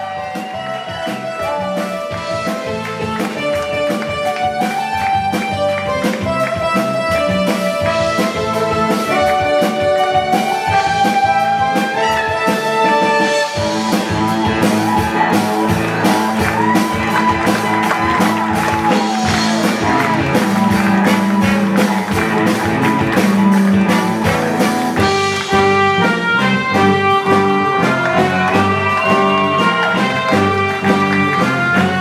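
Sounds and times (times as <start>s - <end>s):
drums: 0.0s - 32.0s
electric guitar: 0.0s - 32.0s
live pop-rock band: 0.0s - 32.0s.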